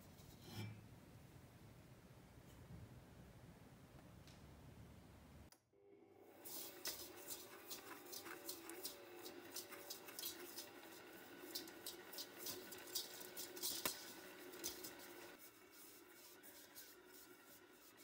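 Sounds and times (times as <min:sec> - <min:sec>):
beater scraping sugar in a bowl: 0:06.4 - 0:18.0.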